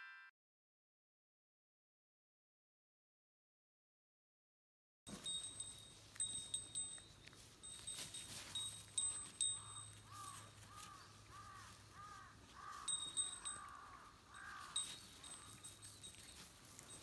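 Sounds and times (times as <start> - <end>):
bird cawing faintly: 9.5 - 15.7.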